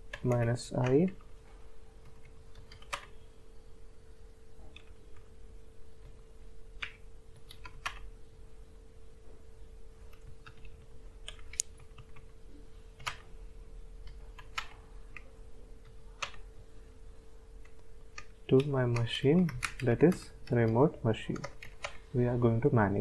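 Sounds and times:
faint steady hum: 0.0 - 23.0
keyboard keystroke clicks: 2.0 - 3.1, 14.0 - 15.3.

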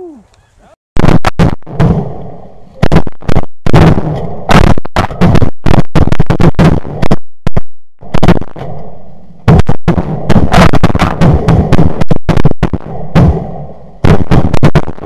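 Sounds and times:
shotgun fire: 1.0 - 2.2, 2.8 - 7.2, 9.5 - 15.0.

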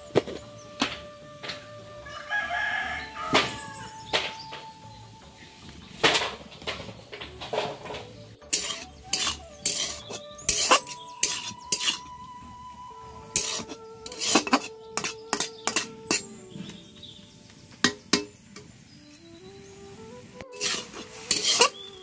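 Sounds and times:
spatula scraping a wok: 6.2 - 12.2, 13.3 - 16.9, 20.5 - 22.0.

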